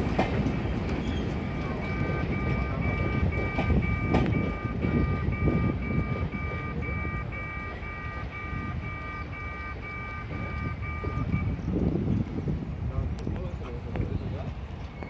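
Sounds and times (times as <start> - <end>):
steady low rumble: 0.0 - 15.0
level crossing alarm beeping: 1.2 - 11.8.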